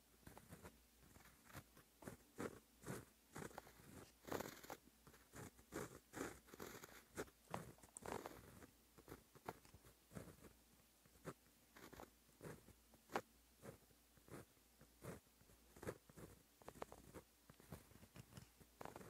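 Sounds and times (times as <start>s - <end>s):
pen scratching on paper: 0.2s - 19.0s.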